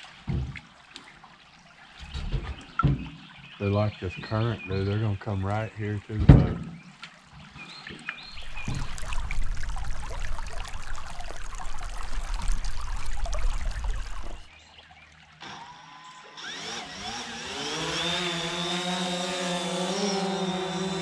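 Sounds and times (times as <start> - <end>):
drone motors whining: 15.5 - 21.0.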